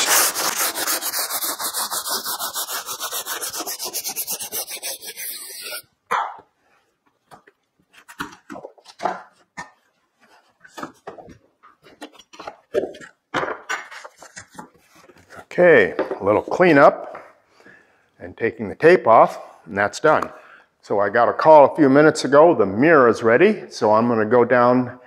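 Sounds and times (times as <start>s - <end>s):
sanding block rubbing board edge: 0.0s - 5.8s.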